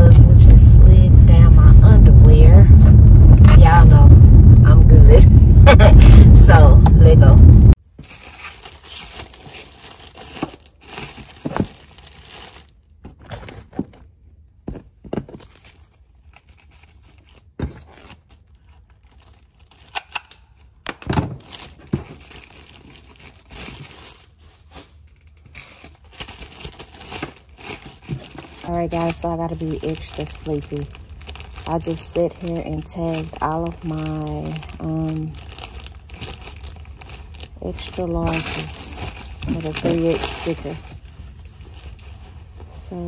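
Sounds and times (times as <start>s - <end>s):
plastic packaging crinkling: 7.7s - 14.0s, 15.0s - 43.0s.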